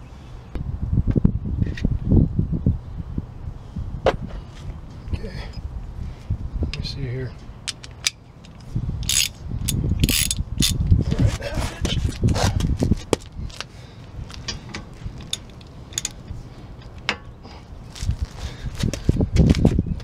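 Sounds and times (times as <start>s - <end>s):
metal tools clinking: 7.7s - 10.8s, 14.4s - 17.3s
socket ratchet clicking: 7.7s - 10.8s, 15.2s - 16.2s.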